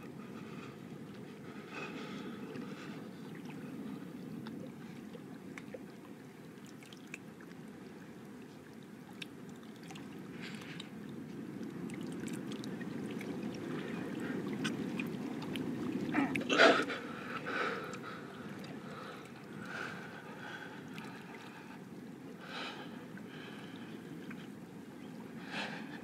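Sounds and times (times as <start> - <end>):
water lapping and sloshing: 0.0 - 26.0
small splashes and drips: 4.4 - 22.4.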